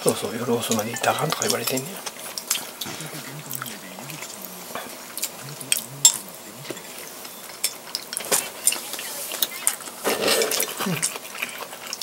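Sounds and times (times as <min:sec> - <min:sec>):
wet mouth eating sounds: 0:00.7 - 0:12.0.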